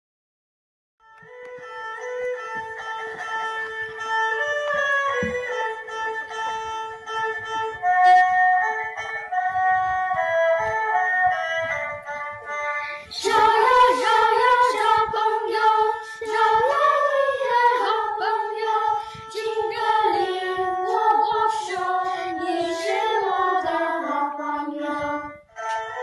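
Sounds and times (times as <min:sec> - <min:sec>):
instrumental accompaniment: 0:01.0 - 0:26.0
children's choir singing: 0:04.8 - 0:05.8, 0:07.3 - 0:26.0.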